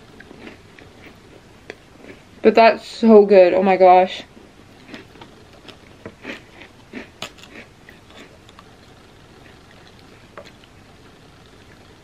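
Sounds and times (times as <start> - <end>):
chewing cracker crunches: 0.1 - 2.2, 4.8 - 11.9.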